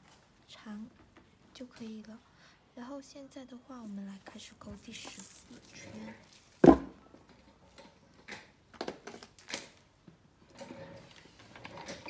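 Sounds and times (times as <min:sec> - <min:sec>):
soft yarn rustling: 0:03.7 - 0:06.6.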